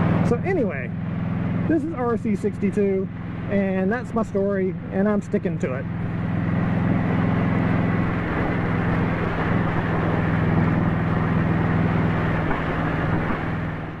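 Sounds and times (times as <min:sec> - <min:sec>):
motorcycle engine running: 0:00.0 - 0:14.0
wind noise: 0:06.0 - 0:14.0.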